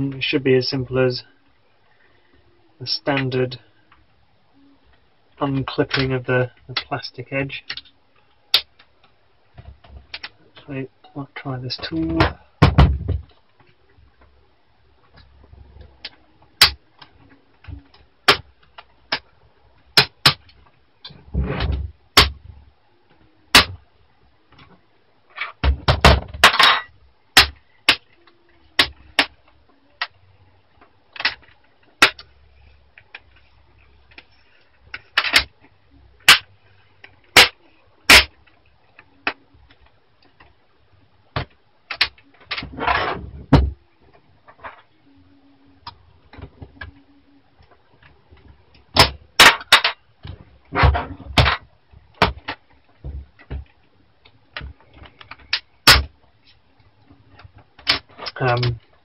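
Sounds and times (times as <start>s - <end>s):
handling and scraping noise: 41.4s - 45.0s.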